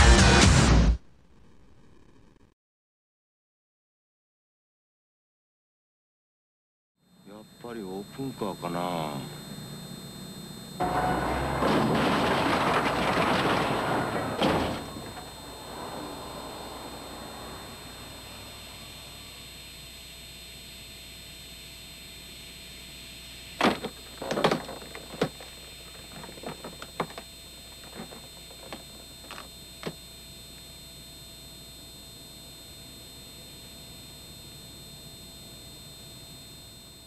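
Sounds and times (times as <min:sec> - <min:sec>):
sharp knocks and clatters: 0:10.8 - 0:15.4, 0:23.6 - 0:27.2.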